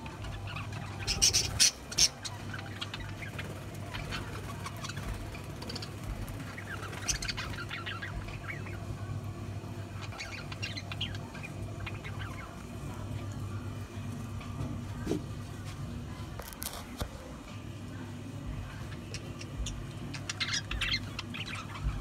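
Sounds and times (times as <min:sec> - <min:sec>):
budgerigars chirping: 0:00.2 - 0:08.8, 0:10.0 - 0:13.0, 0:19.0 - 0:22.0.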